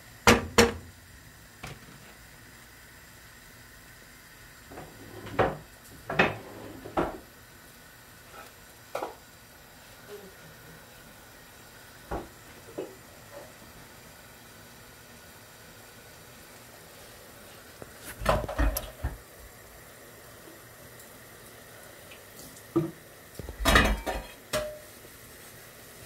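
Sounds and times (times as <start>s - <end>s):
low steady hiss: 0.0s - 26.0s
pots and utensils clattering: 4.7s - 7.2s, 18.1s - 19.2s, 22.7s - 24.9s.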